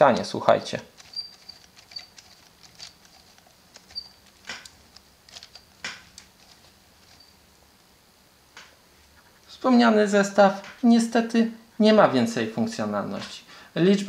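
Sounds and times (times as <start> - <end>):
gears clicking and scraping: 0.0 - 7.4
plastic steering squeaking: 0.9 - 5.7.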